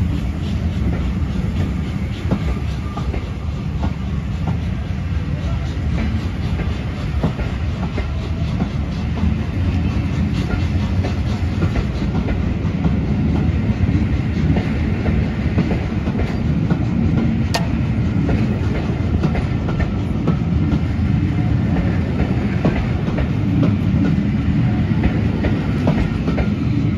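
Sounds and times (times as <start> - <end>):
train coaches rumbling past: 0.0 - 26.9
wheels clicking over rail joints: 14.5 - 20.0.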